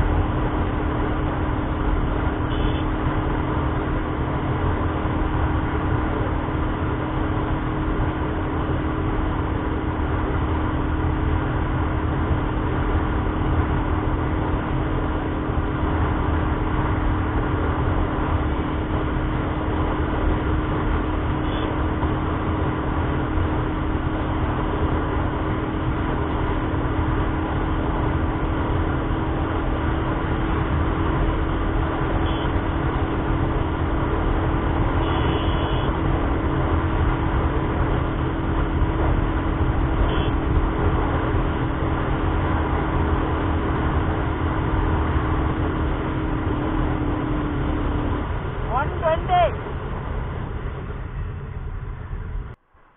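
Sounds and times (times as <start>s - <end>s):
motorcycle engine cruising: 0.0s - 52.9s.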